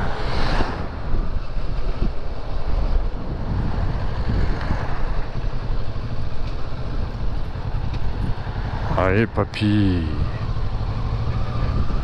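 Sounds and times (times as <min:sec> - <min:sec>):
wind buffeting microphone: 0:00.0 - 0:09.0, 0:10.0 - 0:12.0
motorcycle engine running: 0:05.4 - 0:09.0, 0:10.2 - 0:12.0.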